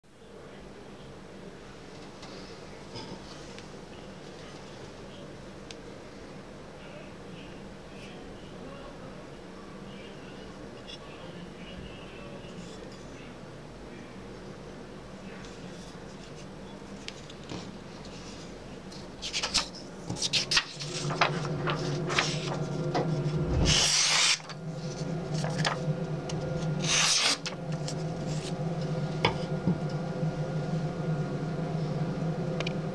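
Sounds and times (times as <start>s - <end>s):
steady low hum: 0.1s - 32.9s
paper rustling: 19.2s - 22.8s
knife slicing paper swishes: 23.6s - 24.6s, 26.8s - 27.5s.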